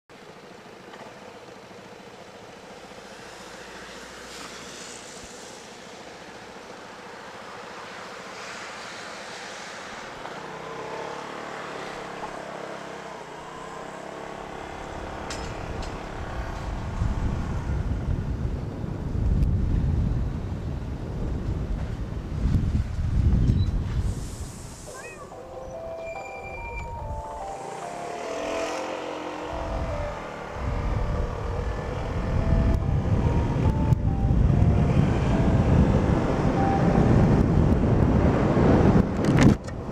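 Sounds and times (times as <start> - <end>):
traffic noise: 0.1 - 39.9
motor scooter engine: 0.2 - 19.0, 26.6 - 39.9
wind rumble on microphone: 14.9 - 24.9, 29.5 - 39.9.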